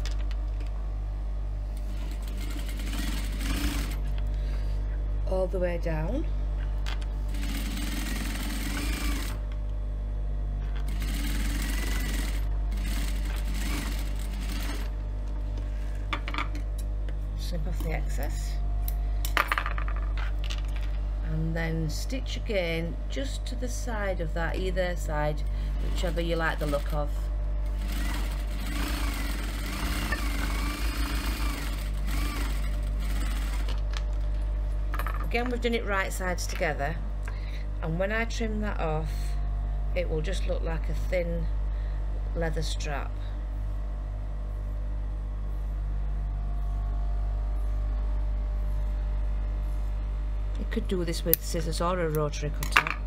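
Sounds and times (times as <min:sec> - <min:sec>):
steady low hum: 0:00.0 - 0:53.0
sewing machine stitching: 0:01.9 - 0:04.1, 0:07.3 - 0:09.4, 0:10.9 - 0:14.9, 0:27.8 - 0:33.8.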